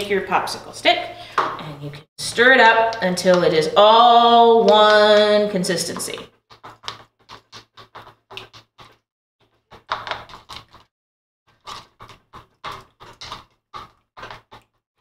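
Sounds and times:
stick scraping a plastic bowl: 4.7s - 10.9s, 11.5s - 14.7s.

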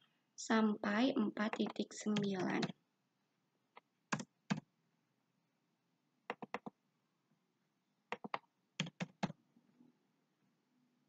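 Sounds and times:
computer keyboard typing: 1.4s - 2.8s, 3.8s - 4.7s, 6.3s - 6.8s, 8.1s - 9.4s.

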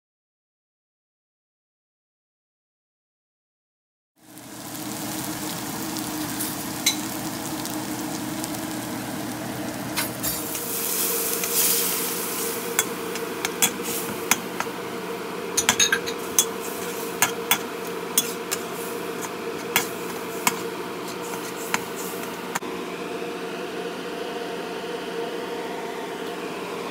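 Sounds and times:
vegetables sizzling in a wok: 4.2s - 23.2s
metal spatula scraping a wok: 10.0s - 14.8s, 15.6s - 22.6s.

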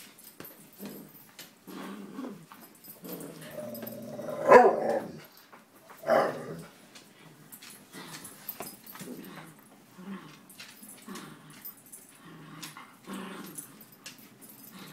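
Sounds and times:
dog growling: 0.8s - 5.4s, 6.0s - 8.4s, 9.0s - 14.9s
dog barking: 4.4s - 5.1s, 6.0s - 6.5s.

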